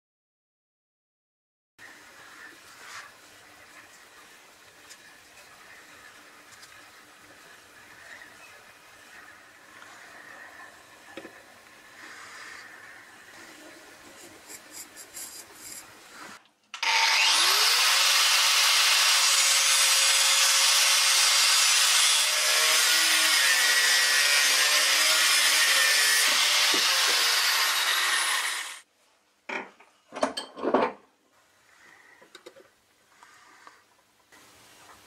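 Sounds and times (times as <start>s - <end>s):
angle grinder grinding steel: 16.8s - 28.8s.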